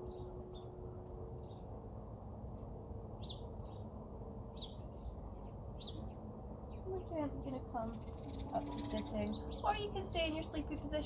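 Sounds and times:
birds chirping: 0.0 - 0.8, 3.2 - 11.0
low outdoor background noise: 0.0 - 11.0.

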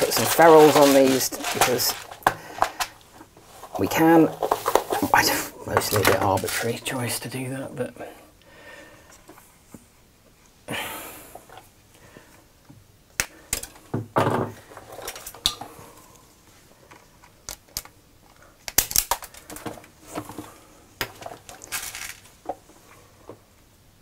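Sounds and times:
tools and metal parts clattering: 0.0 - 2.9, 21.2 - 22.3.

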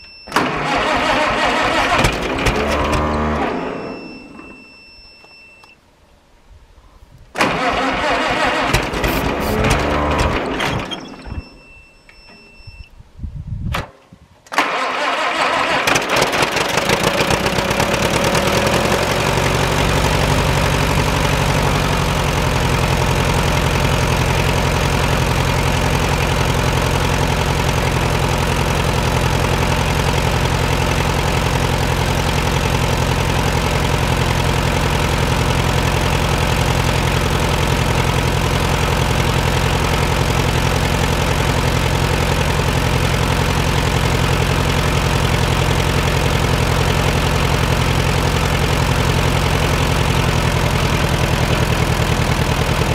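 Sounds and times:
tractor engine idling: 0.0 - 4.7, 7.4 - 11.8, 14.6 - 52.9
engine cranking: 0.3 - 4.1, 7.4 - 11.7, 14.5 - 34.3.

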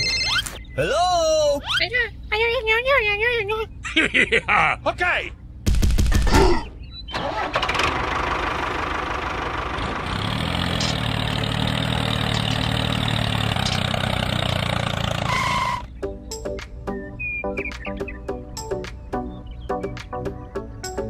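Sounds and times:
tractor engine running: 7.1 - 16.0.

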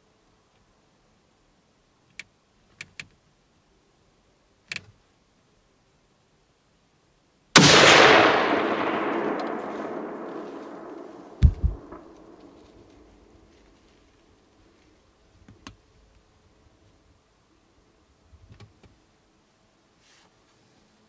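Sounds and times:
loud echoing gunshot: 7.6 - 13.0.

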